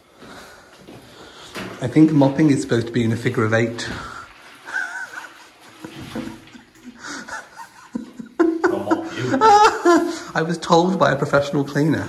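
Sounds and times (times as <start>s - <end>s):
man laughing: 4.7s - 10.2s.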